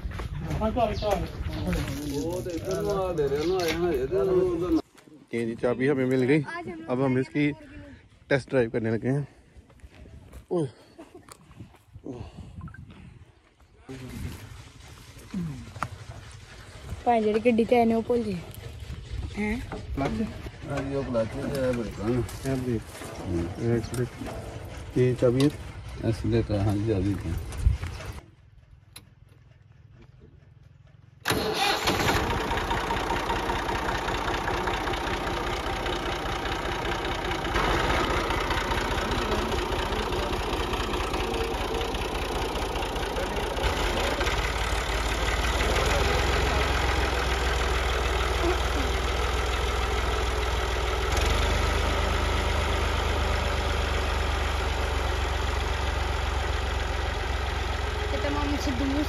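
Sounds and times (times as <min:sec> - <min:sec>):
tractor diesel engine: 0:13.9 - 0:59.0.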